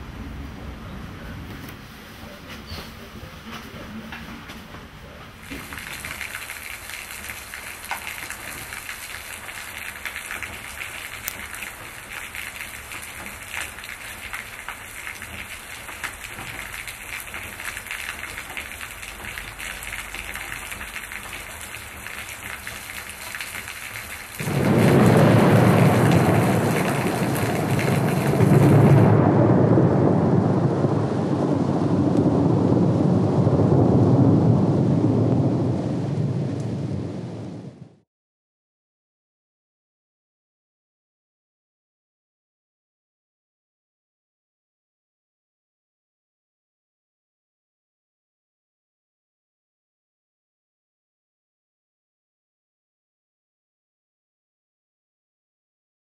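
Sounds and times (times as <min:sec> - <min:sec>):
rain on a tiled patio: 0:05.3 - 0:38.0
thunder rumbling: 0:05.4 - 0:38.0.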